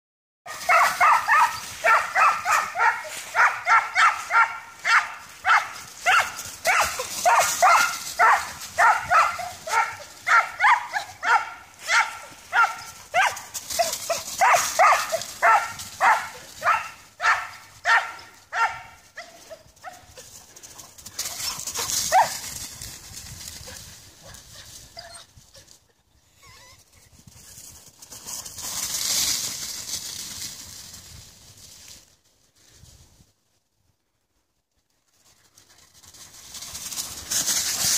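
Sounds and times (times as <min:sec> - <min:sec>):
dog barking: 0:00.5 - 0:20.1, 0:21.8 - 0:22.4
dry leaves rustling under paws: 0:00.5 - 0:25.7, 0:27.1 - 0:33.0, 0:35.1 - 0:37.9.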